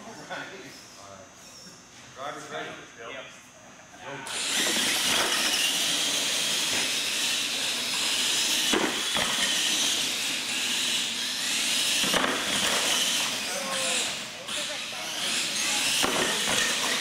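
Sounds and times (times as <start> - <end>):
rc truck motor whine: 4.3 - 17.0.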